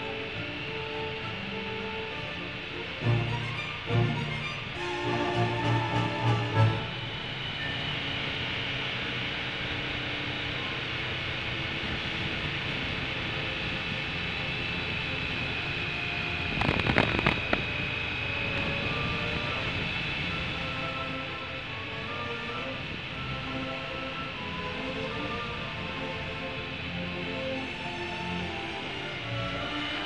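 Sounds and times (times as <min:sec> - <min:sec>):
wind rush: 0:02.1 - 0:23.3
motorcycle road noise: 0:08.3 - 0:23.0.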